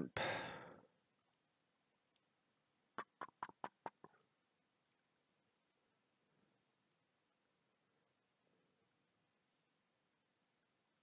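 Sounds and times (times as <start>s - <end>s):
faint ticks: 0.5s - 5.9s, 6.6s - 7.2s, 9.4s - 11.0s.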